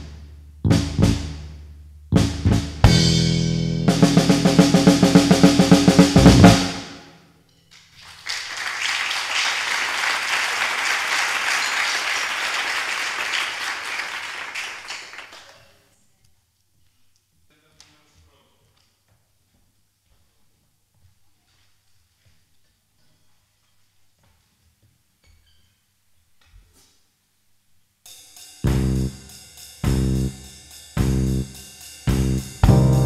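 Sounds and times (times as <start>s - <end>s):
drum kit played hard: 0.0s - 7.0s, 28.1s - 33.0s
applause: 7.7s - 15.9s.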